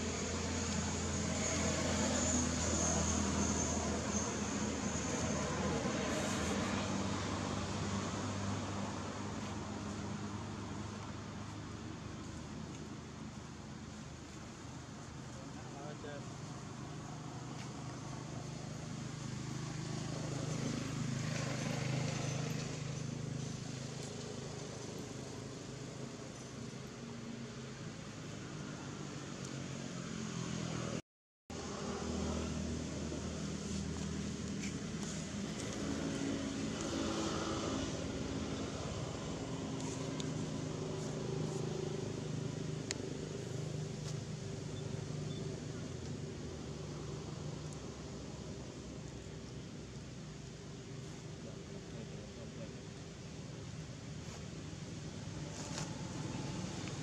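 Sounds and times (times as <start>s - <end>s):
vehicle passing by: 0.0s - 11.5s, 15.6s - 25.8s, 28.4s - 49.9s.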